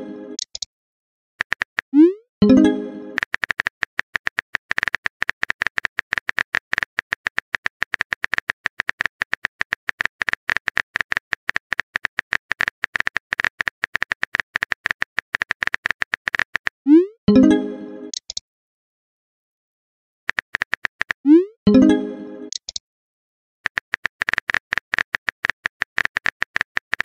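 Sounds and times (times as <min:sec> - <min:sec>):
keyboard tapping clicks: 0:01.4 - 0:01.9, 0:03.2 - 0:16.8, 0:20.3 - 0:21.2, 0:23.7 - 0:27.0.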